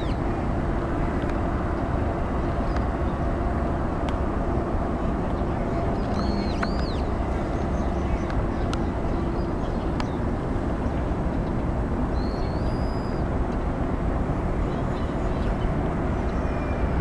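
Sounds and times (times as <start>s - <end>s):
low outdoor rumble: 0.0s - 17.0s
bird whistled calls: 6.0s - 7.1s, 12.2s - 13.2s.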